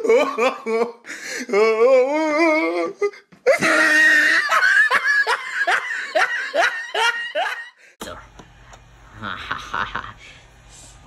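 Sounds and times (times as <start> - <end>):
person laughing hard: 0.0 - 1.0, 3.5 - 7.8, 9.2 - 10.3.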